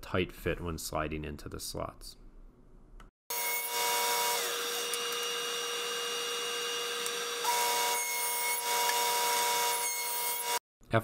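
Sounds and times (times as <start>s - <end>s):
table saw motor whine: 3.3s - 10.6s.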